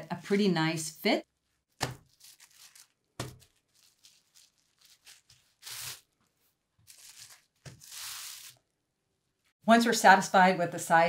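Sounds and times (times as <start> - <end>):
felt rubbed on bubble wrap: 2.1 - 6.2, 6.9 - 8.6.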